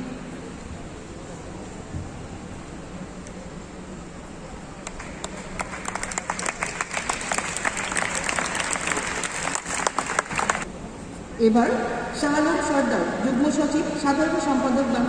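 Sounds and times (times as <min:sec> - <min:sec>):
audience applauding: 0:04.8 - 0:10.7.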